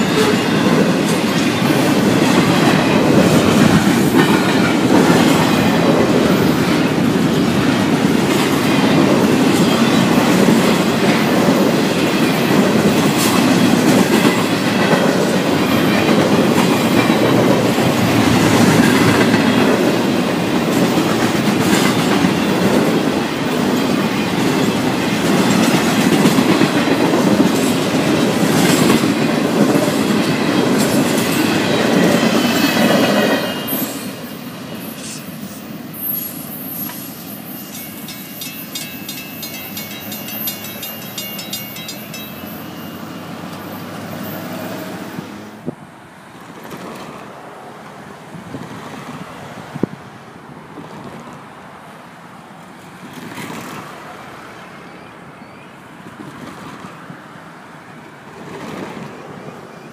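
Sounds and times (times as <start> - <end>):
train wheels clacking over rail joints: 0.0 - 34.2
train rumble: 0.0 - 52.0.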